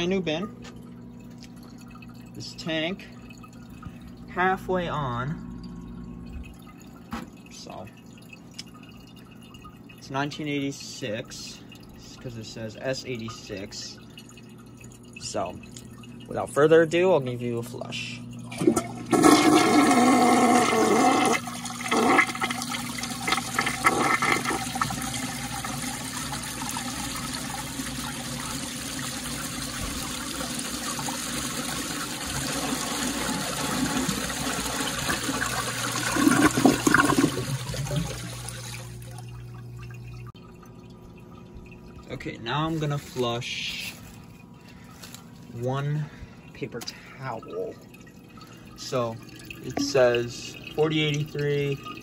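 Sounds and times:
toilet gurgle: 0.0 - 52.0
toilet flushing water rush: 8.6 - 52.0
swirling water: 18.2 - 52.0.

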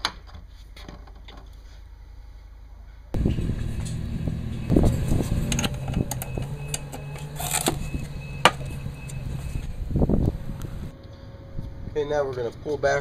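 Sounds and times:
steady low hum: 3.2 - 11.0.

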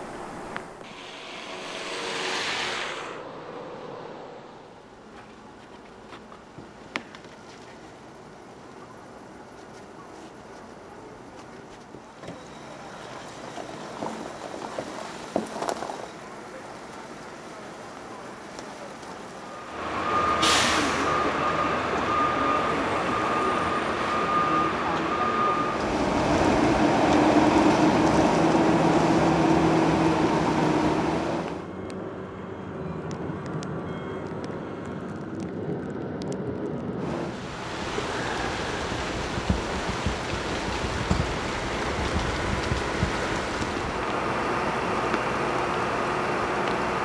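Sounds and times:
air brakes hissing: 0.9 - 3.6, 19.6 - 25.0
reversing alarm beeping: 19.5 - 26.3
truck engine running: 37.1 - 47.0.

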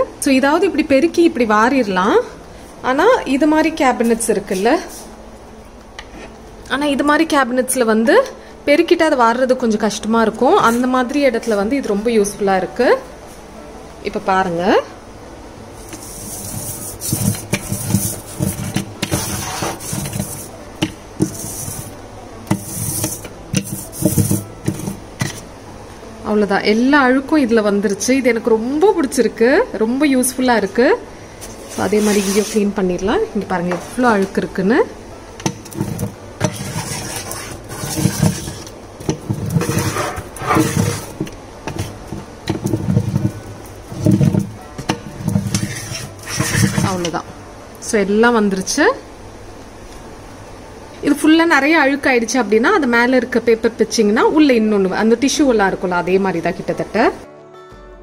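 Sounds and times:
sticky roller rasping on shelf liner: 15.9 - 25.5, 31.6 - 32.6, 35.7 - 44.6, 45.2 - 47.1
roller knocking against shelf: 22.5 - 25.4, 35.5 - 47.1.

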